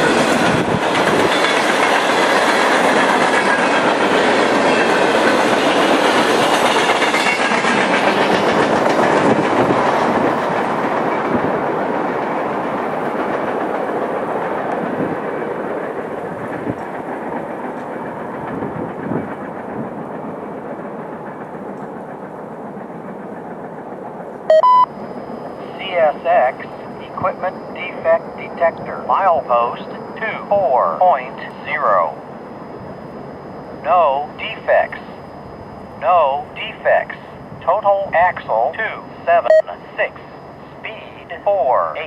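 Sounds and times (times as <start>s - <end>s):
freight train rolling past: 0.0s - 42.0s.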